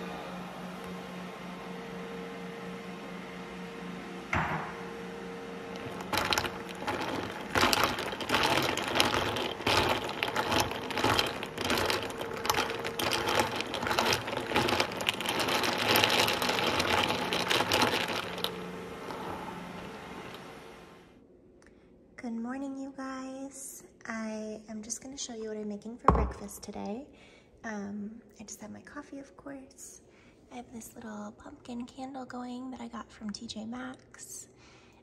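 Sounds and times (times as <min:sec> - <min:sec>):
low appliance hum: 0:00.0 - 0:21.2
single knock: 0:04.3 - 0:04.8
metal stirrer clinking against glass: 0:05.8 - 0:18.6.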